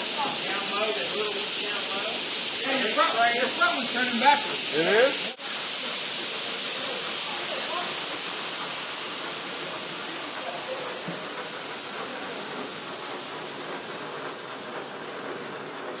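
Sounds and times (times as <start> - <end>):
high-pressure water jets hissing: 0.0 - 15.9.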